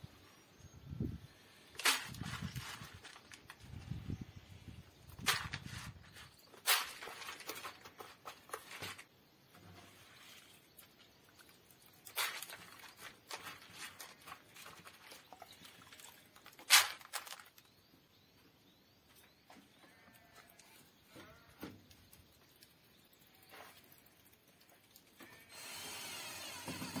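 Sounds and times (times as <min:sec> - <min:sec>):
grain rustling into plastic trays: 0:01.7 - 0:18.0.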